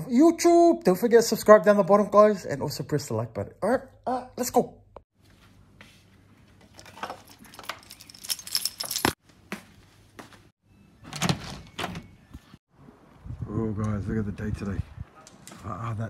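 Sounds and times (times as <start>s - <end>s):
clattering handling noises: 6.6s - 9.2s
keys jingling: 6.7s - 9.2s.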